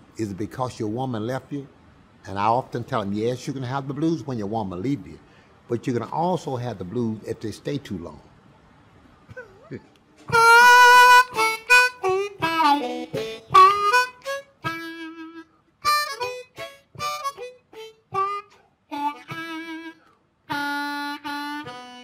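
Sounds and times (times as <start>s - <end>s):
blues harmonica playing: 10.2s - 22.0s.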